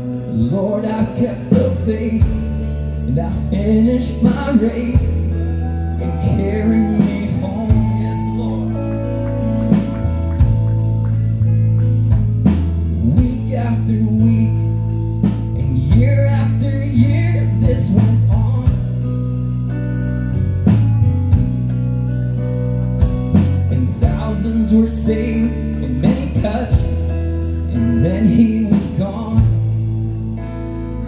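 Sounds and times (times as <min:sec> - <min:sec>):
man singing: 0:00.0 - 0:09.3, 0:12.9 - 0:19.1, 0:23.3 - 0:29.8
low bass notes: 0:00.0 - 0:31.0.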